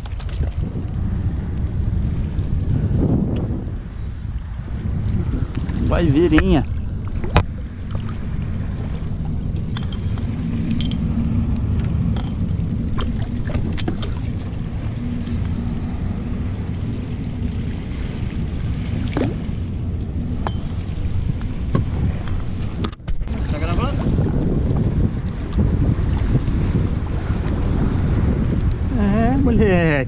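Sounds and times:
wind buffeting microphone: 0.0 - 30.0
water sloshing: 4.3 - 28.8
fish splashing and knocking: 5.6 - 15.4, 18.9 - 19.6.

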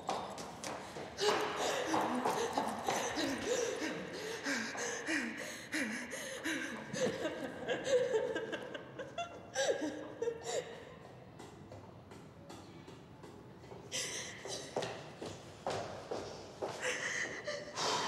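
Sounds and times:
gasping breaths: 0.9 - 7.2, 16.8 - 18.0
woman sobbing: 1.2 - 10.9.

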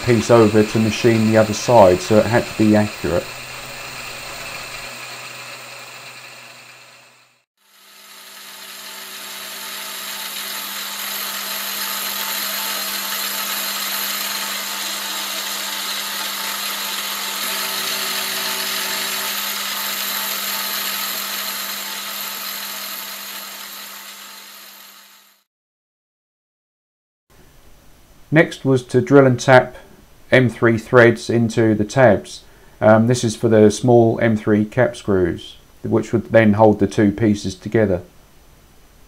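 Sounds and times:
milling machine cutting metal: 0.0 - 25.4.

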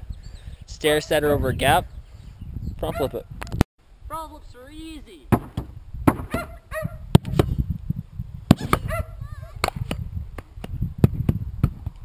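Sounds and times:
wind rumbling on microphone: 0.0 - 4.6, 5.4 - 12.0
sharp knocks: 5.3 - 6.5.

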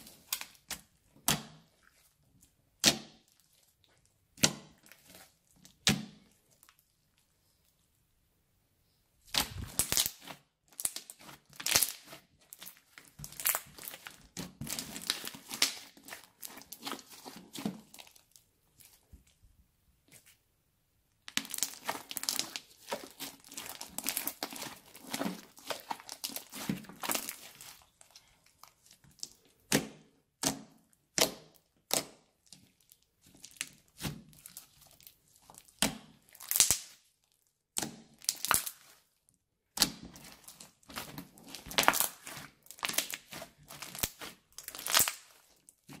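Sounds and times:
slime crackling and popping: 0.0 - 2.1, 9.3 - 19.0, 21.2 - 39.1, 39.7 - 46.0.

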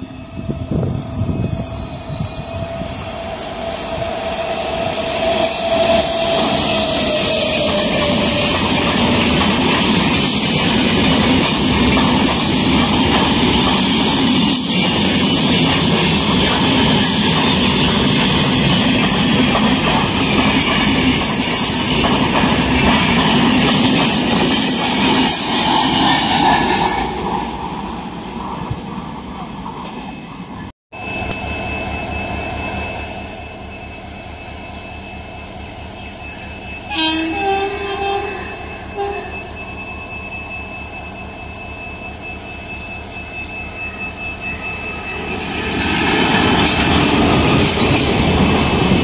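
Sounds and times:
train wheels rumbling on rail: 0.0 - 30.6, 38.9 - 49.0.

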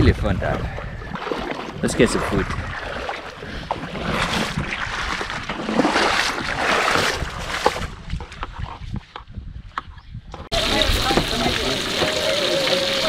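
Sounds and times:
seawater splashing around legs: 1.1 - 8.0.

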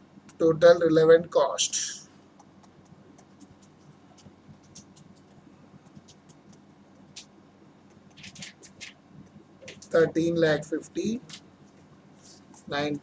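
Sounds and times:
faint low hum: 0.0 - 13.0
stylus tapping on drawing tablet: 2.3 - 7.3.

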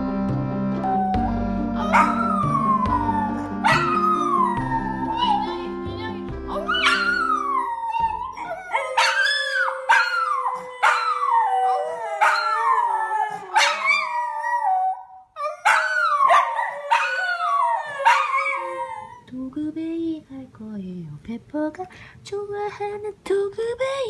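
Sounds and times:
dog howling long note: 0.8 - 5.4, 6.6 - 19.2.

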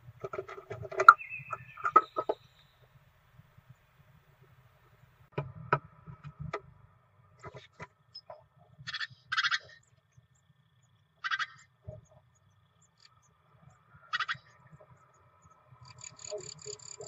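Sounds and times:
birds knocking on wooden nest box: 0.2 - 2.5
nestlings begging calls: 1.1 - 2.6, 11.2 - 11.7, 14.0 - 14.6.

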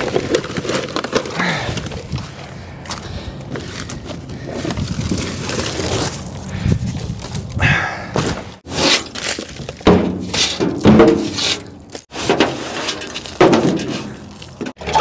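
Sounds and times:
junk thrown onto pile: 8.2 - 15.0
broom sweeping and scraping: 8.6 - 9.2, 10.2 - 14.3.

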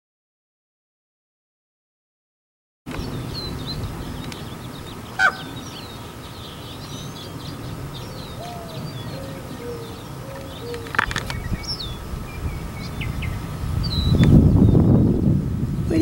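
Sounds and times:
songbirds chirping: 2.9 - 16.0
raven call: 3.6 - 12.1.

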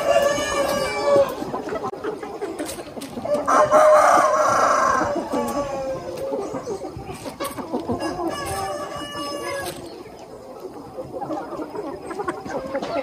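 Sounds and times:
chickens clucking: 0.0 - 13.0
rooster crowing: 3.5 - 6.0.

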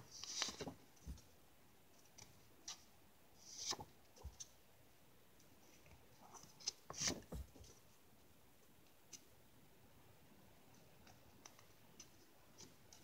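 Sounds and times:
paper cards rustling: 0.1 - 1.2.

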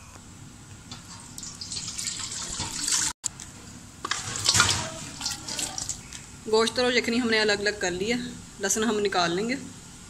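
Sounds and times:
liquid pouring into a colander: 1.1 - 3.2, 4.1 - 6.0.

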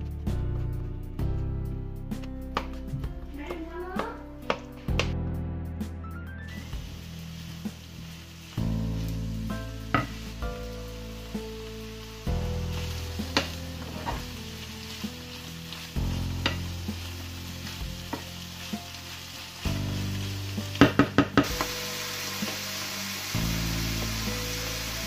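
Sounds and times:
onions and mushrooms sizzling: 0.0 - 25.0
soft background music: 0.0 - 25.0
wooden spoon scraping a pan: 6.6 - 22.6.

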